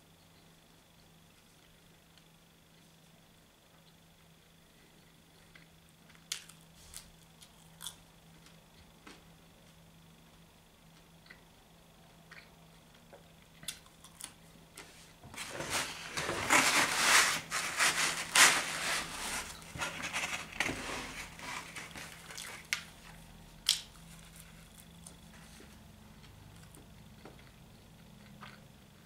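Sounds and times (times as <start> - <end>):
pizza packaging rustling: 15.3 - 23.2.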